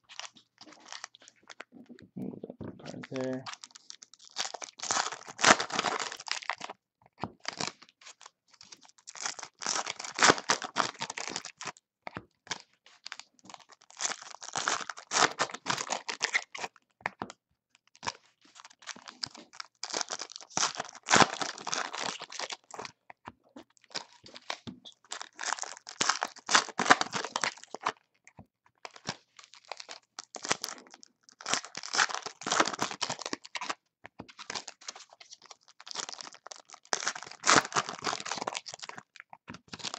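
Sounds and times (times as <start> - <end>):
foil wrappers tearing and crinkling: 2.9 - 6.7, 7.5 - 11.7, 13.1 - 16.7, 18.0 - 22.9, 23.8 - 28.0, 28.9 - 39.1, 39.7 - 39.9.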